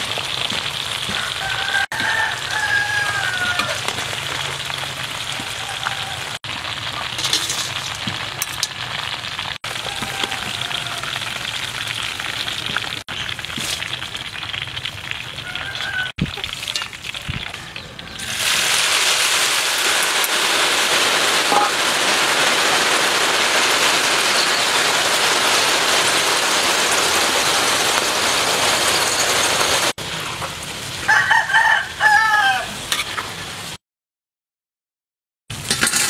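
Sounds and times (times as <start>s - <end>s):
deep-frying sizzle in hot oil: 0.0s - 33.8s
rooster crowing: 1.1s - 3.9s, 5.3s - 6.4s, 9.6s - 11.4s, 15.4s - 16.2s, 31.1s - 32.8s.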